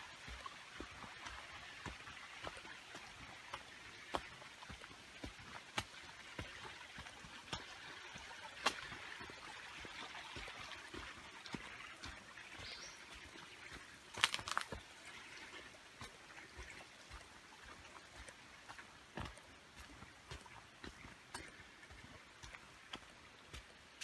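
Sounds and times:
footsteps on dirt trail: 0.2 - 24.0.

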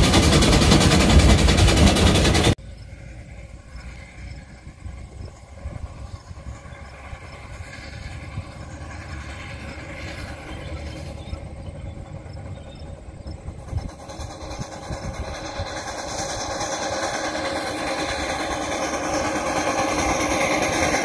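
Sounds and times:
steam locomotive approaching: 0.0 - 21.0
wind rumble on microphone: 3.5 - 17.2.

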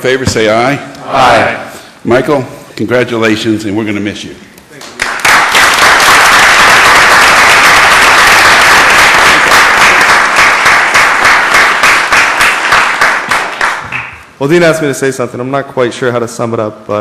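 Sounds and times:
people applauding: 4.7 - 14.3.

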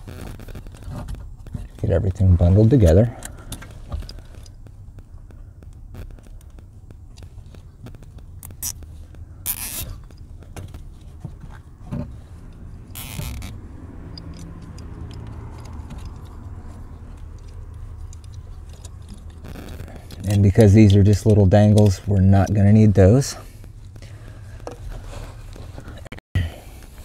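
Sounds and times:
clicks and rustles of wiring: 0.0 - 26.2
steady low hum: 0.0 - 27.0
zip ties ratcheting tight: 7.8 - 10.3, 12.8 - 16.5.

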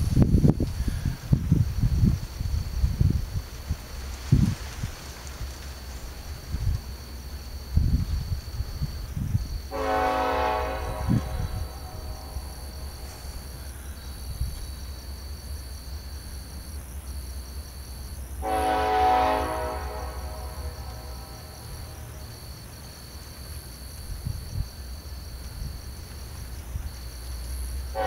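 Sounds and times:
crickets trilling: 0.0 - 28.0
locomotive air horn blasts: 9.6 - 14.0, 18.4 - 22.4.

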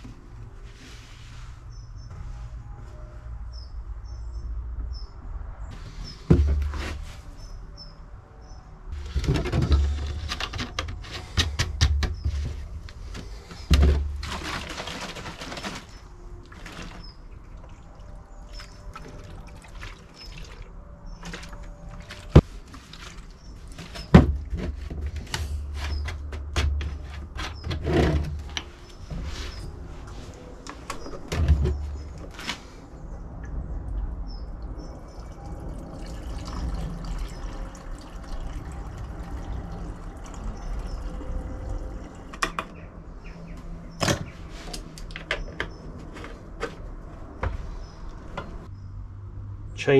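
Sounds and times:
plastic containers clunking: 9.0 - 17.2, 23.6 - 29.3, 30.7 - 32.6
fuel pouring: 35.0 - 42.4.

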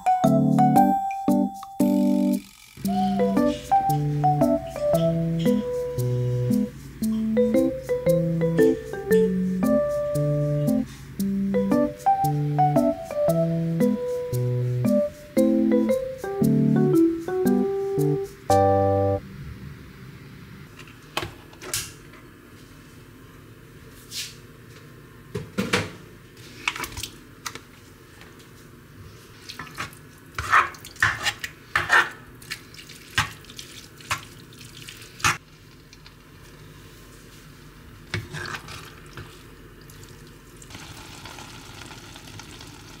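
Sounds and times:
spatula scraping a pot: 30.4 - 32.2.

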